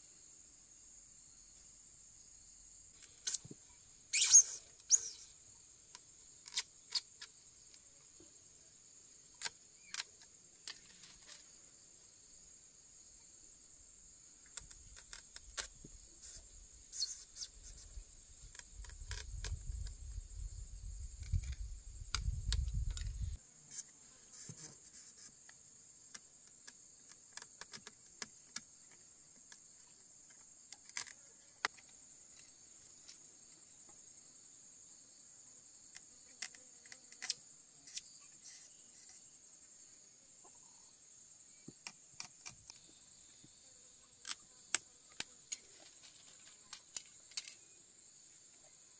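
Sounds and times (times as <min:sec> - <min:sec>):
high-pitched insect chirring: 0:04.1 - 0:05.4, 0:14.5 - 0:23.4.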